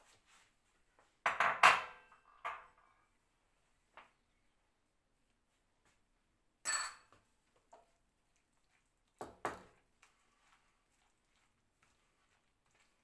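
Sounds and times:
cutlery clinking on porcelain bowl: 6.7s - 7.1s.

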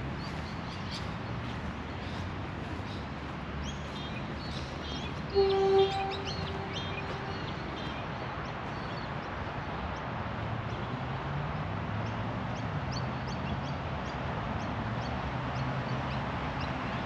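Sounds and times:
background noise: 0.0s - 17.0s
high bird chirps: 4.9s - 8.0s
low drone: 5.3s - 8.0s.

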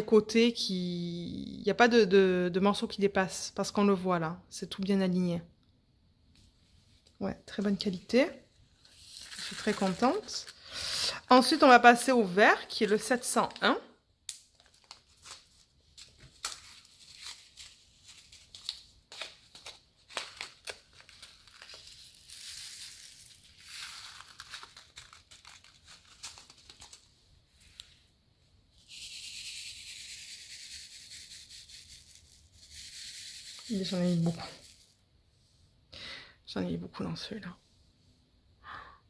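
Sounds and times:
plastic rustling: 8.7s - 10.6s, 14.5s - 28.0s
plastic bags crinkling: 8.9s - 10.6s, 14.4s - 27.1s.

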